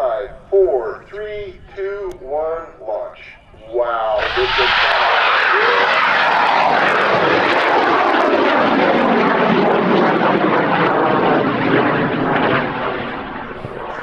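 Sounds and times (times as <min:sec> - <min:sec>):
rocket motor roaring: 0:04.0 - 0:14.0.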